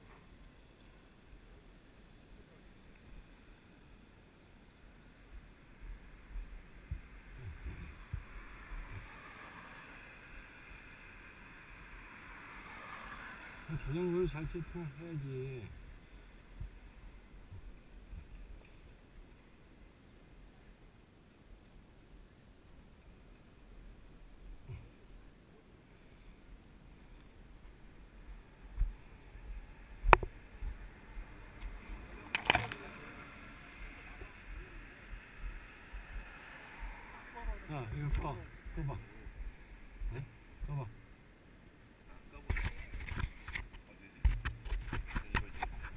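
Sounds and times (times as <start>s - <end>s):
faint steady hiss: 0.0s - 45.9s
low bumps: 5.3s - 10.5s, 13.7s - 19.0s, 26.8s - 41.2s
wind rumble on microphone: 5.3s - 10.5s, 27.4s - 32.3s, 33.0s - 41.0s.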